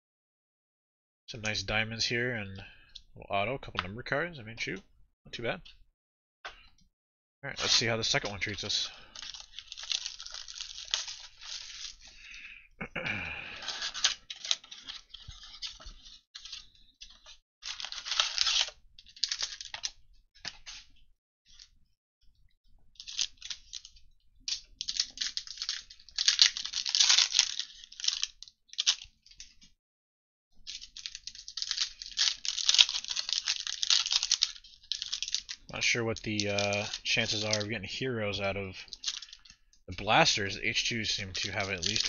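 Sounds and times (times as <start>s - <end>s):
foil packs crinkling and tearing: 7.6s - 12.4s, 13.1s - 20.0s, 23.0s - 29.4s, 30.7s - 37.7s, 38.9s - 42.0s.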